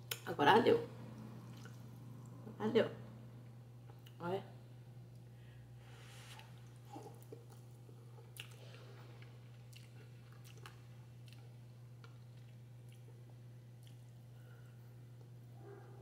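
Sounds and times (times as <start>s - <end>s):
steady low hum: 0.0s - 16.0s
person chewing noodles: 1.4s - 1.9s, 6.2s - 15.3s.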